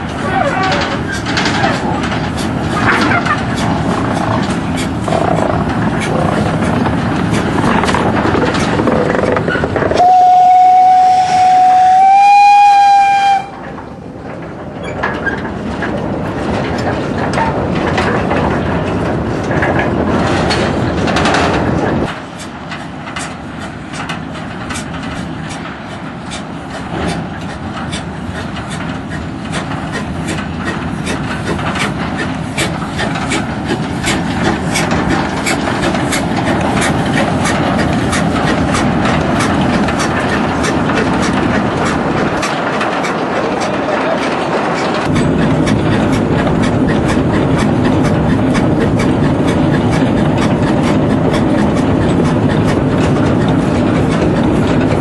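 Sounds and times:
steam locomotive hauling train: 0.0s - 55.0s
wagon wheels rattling and clicking: 0.2s - 10.0s, 26.9s - 55.0s.

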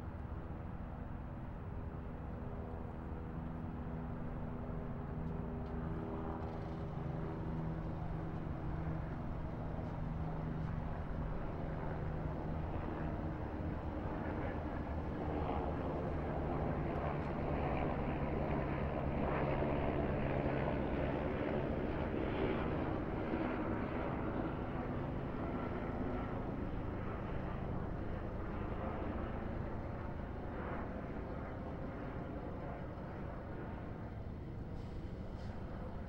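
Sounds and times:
engine-like rumble with low hum: 1.8s - 18.1s, 27.0s - 36.0s.

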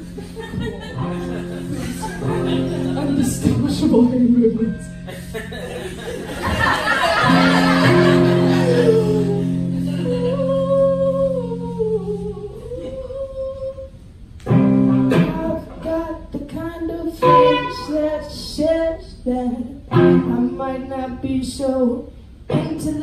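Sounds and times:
electric guitar chords: 0.0s - 12.7s, 14.4s - 16.3s, 17.2s - 18.4s, 19.9s - 20.9s
person singing: 1.9s - 5.0s, 7.8s - 13.9s, 14.9s - 23.0s.

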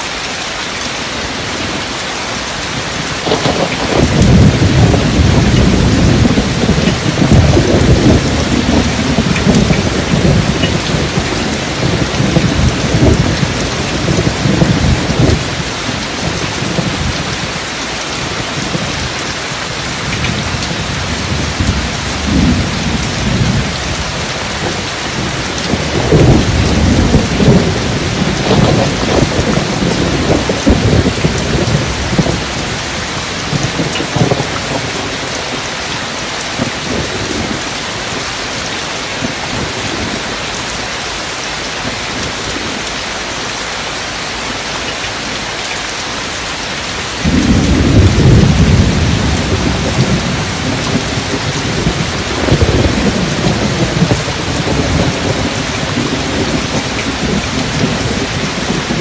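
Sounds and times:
steady rain: 0.0s - 59.0s
deep rolling thunder: 2.7s - 35.8s, 36.4s - 38.4s, 47.0s - 59.0s.

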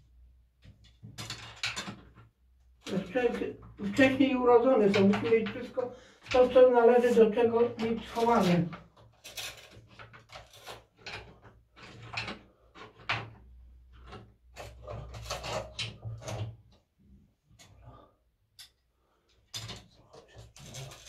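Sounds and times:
household objects knocking and scraping: 0.6s - 16.8s.

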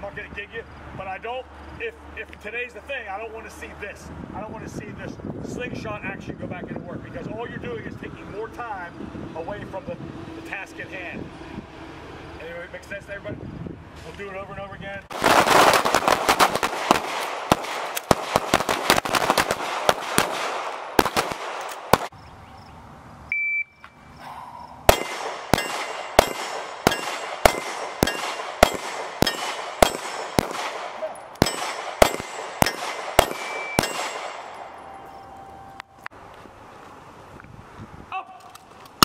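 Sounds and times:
pistols firing rapidly: 15.1s - 22.1s, 24.9s - 34.7s
handgun shots: 15.7s - 22.1s, 24.9s - 34.7s
short electronic beep: 23.3s - 24.1s, 34.8s - 36.0s
steel target ringing: 24.9s - 30.5s, 31.4s - 35.8s.

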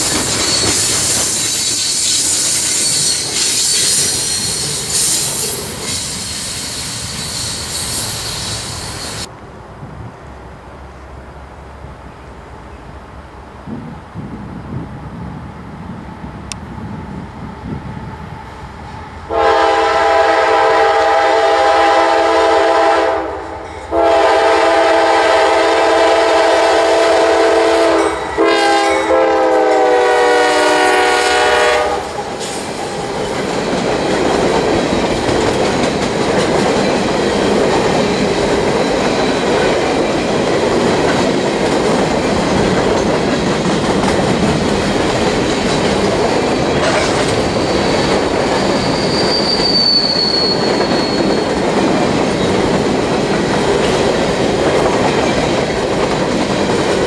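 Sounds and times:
train cars rumbling and clattering: 0.0s - 57.0s
locomotive air horn blasts: 19.3s - 32.2s.

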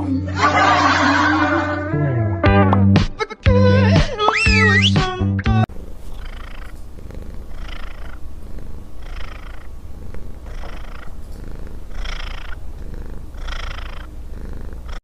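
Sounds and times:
cat purring: 5.7s - 15.0s.

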